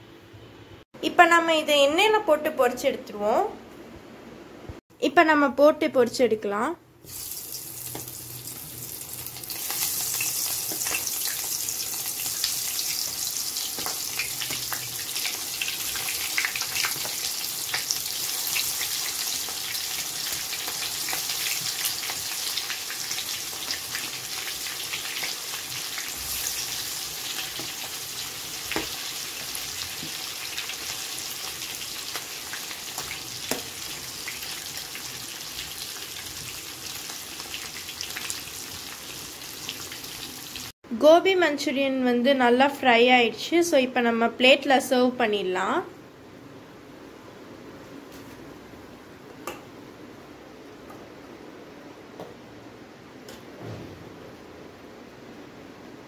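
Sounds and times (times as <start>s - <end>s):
deep-frying sizzle with crackles: 7.0s - 40.7s.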